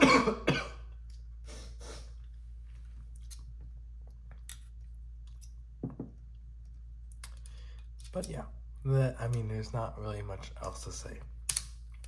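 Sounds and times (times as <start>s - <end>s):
man coughing: 0.0s - 0.9s.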